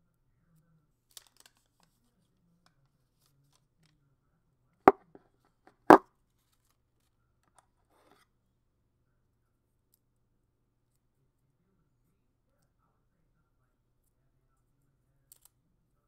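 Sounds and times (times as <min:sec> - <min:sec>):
plastic adapter knocking: 0:04.9 - 0:05.1.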